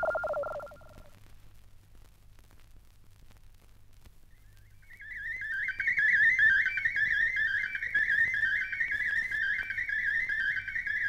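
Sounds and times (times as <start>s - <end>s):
high warbling electronic tone: 0.0s - 1.0s
faint record hum: 0.0s - 11.0s.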